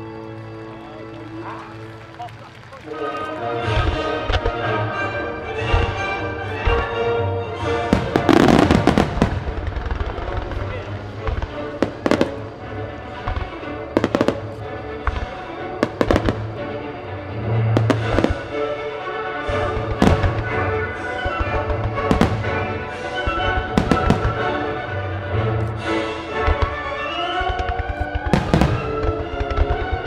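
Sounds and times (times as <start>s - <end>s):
music playing: 0.0s - 30.0s
firework bangs: 5.6s - 30.0s
firework crackling: 7.6s - 30.0s.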